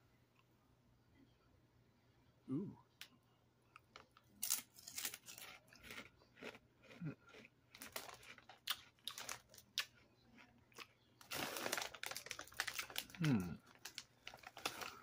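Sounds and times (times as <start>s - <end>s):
potato chip crunching: 4.3s - 15.0s.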